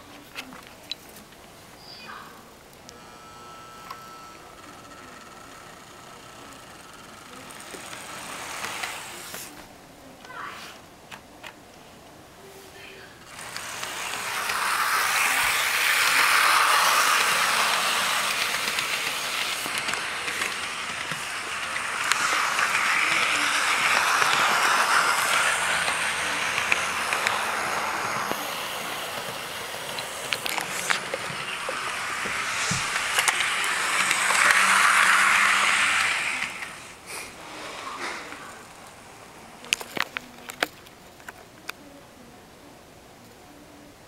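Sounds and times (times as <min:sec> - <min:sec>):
model train whirring: 0:02.8 - 0:09.7, 0:13.2 - 0:41.4.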